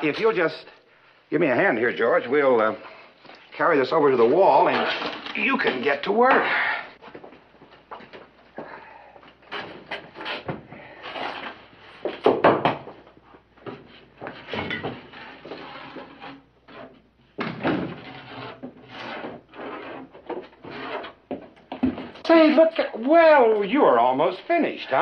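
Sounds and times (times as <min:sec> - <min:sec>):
concrete blocks scraping and knocking: 0:13.7 - 0:22.2.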